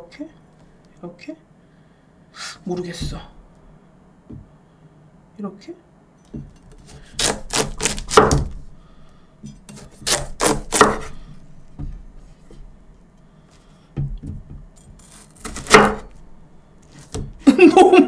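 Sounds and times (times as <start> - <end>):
knife cutting watermelon: 6.6 - 8.6, 9.6 - 11.2, 14.8 - 16.2.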